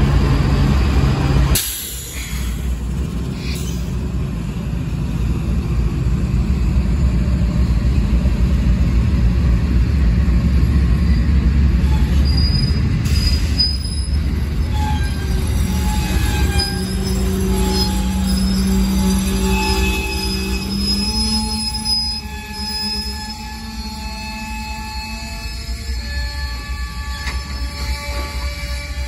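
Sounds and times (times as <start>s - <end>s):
freight train rumbling past: 0.0s - 29.0s
high-pitched wheel squeals: 10.9s - 29.0s.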